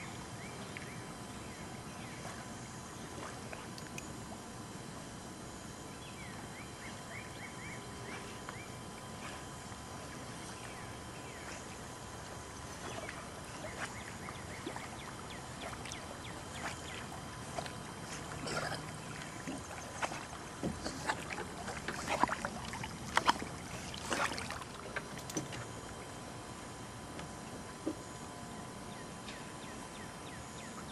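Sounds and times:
pond water splashing: 0:08.1 - 0:26.2.

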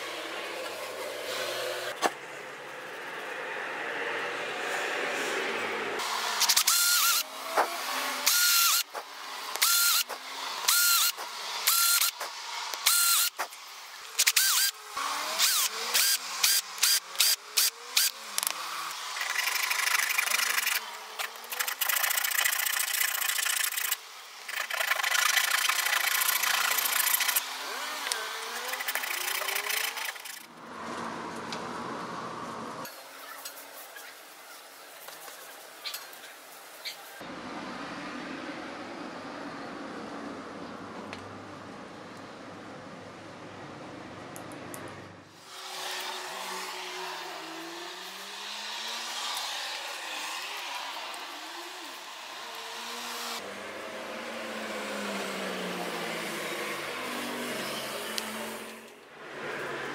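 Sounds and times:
power tool motor whine: 0:06.0 - 0:30.5, 0:45.4 - 0:58.9.

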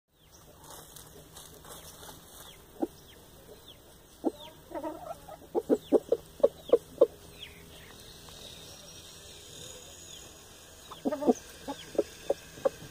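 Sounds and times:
rooster clucking: 0:04.2 - 0:07.3, 0:10.9 - 0:12.9.

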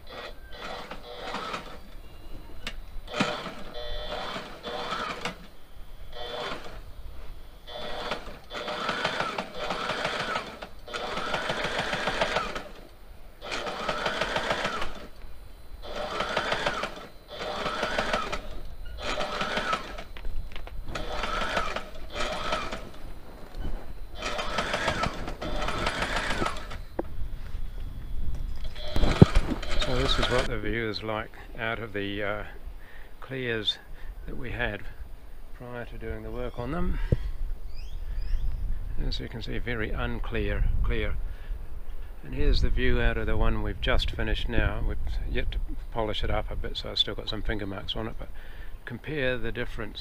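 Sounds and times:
sewing machine stitching: 0:00.1 - 0:01.8, 0:03.1 - 0:05.4, 0:07.8 - 0:12.8, 0:13.4 - 0:15.1, 0:15.8 - 0:20.1, 0:20.9 - 0:22.8, 0:24.2 - 0:26.8, 0:28.7 - 0:30.5.

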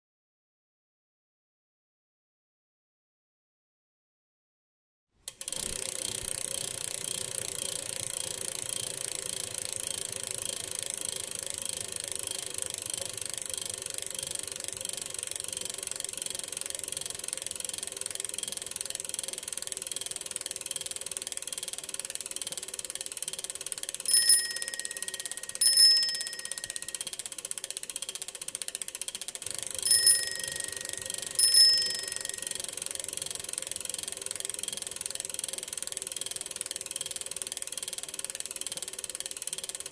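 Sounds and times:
bicycle bell ringing: 0:24.0 - 0:27.2, 0:29.5 - 0:32.8.

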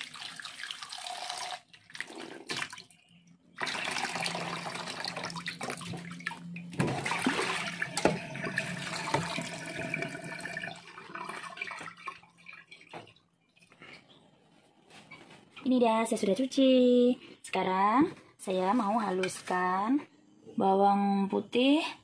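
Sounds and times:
tap water running into a sink: 0:00.0 - 0:02.8, 0:03.6 - 0:06.2, 0:06.8 - 0:13.2.

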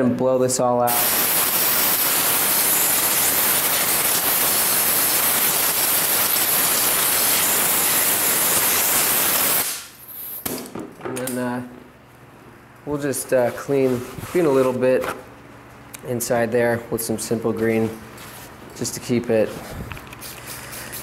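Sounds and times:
compressed air blow gun hissing: 0:00.9 - 0:09.9.

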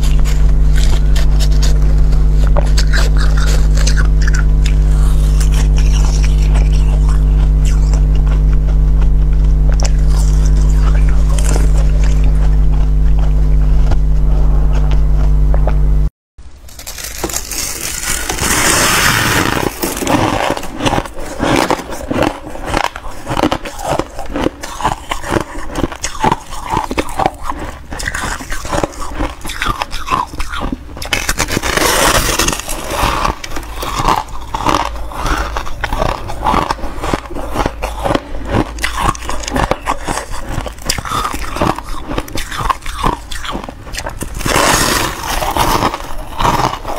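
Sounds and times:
crunching and scraping freezer frost: 0:00.0 - 0:15.5, 0:16.5 - 0:46.9
steady low hum: 0:00.0 - 0:46.9.

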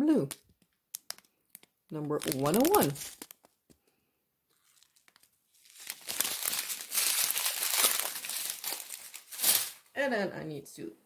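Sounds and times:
plastic bags crinkling: 0:00.5 - 0:03.7, 0:04.5 - 0:09.9.

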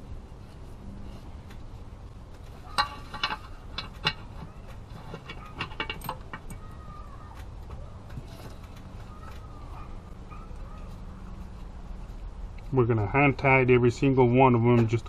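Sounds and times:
metal bolts clinking: 0:02.6 - 0:07.1.

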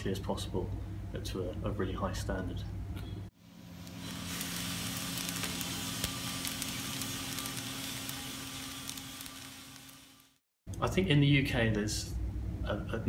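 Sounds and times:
low machine hum: 0:00.0 - 0:13.0
coffee beans rattling into tray: 0:03.9 - 0:10.0.

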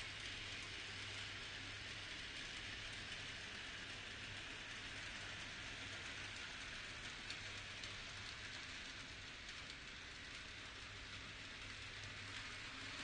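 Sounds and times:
model train whirring on rails: 0:00.0 - 0:13.0.

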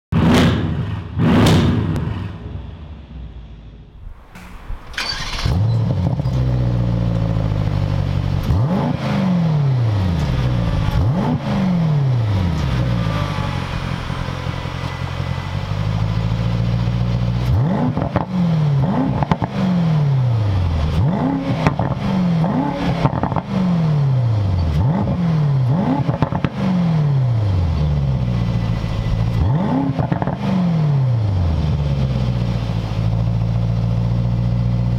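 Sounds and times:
car engine revving: 0:00.2 - 0:03.2, 0:03.9 - 0:34.9
exhaust cracks: 0:03.9 - 0:09.1.

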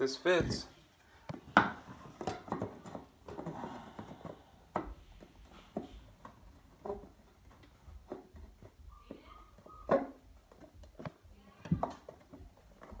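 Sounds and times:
wood pieces knocking and scraping: 0:00.3 - 0:08.8.

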